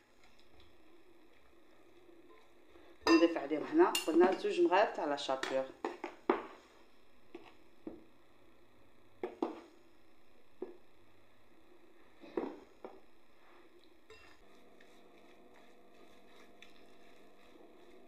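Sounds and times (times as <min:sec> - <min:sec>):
spatula stirring in glass bowl: 0:13.4 - 0:18.0.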